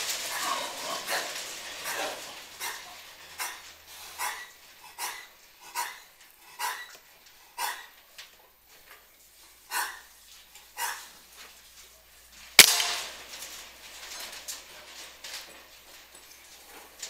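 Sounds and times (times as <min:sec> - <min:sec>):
dog barking: 0:09.7 - 0:10.0
air rifle shot: 0:12.6 - 0:13.2.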